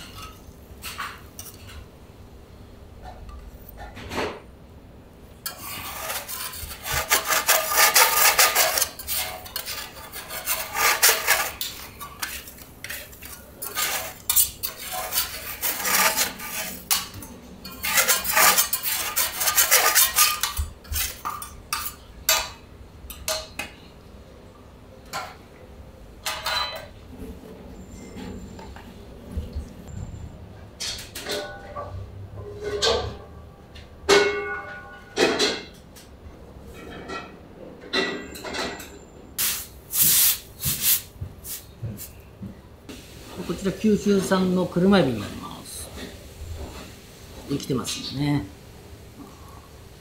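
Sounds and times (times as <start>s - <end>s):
metal spatulas scraping griddle: 5.4s - 22.5s.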